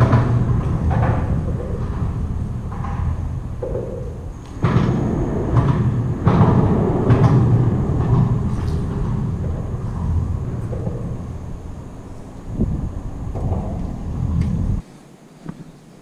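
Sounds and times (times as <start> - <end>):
heavy thump: 0.0 - 14.8
traffic rumble on bridge: 0.0 - 14.8.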